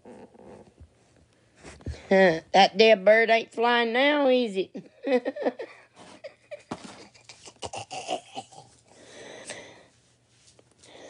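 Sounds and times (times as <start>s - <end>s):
woman laughing breathily: 4.9s - 7.6s.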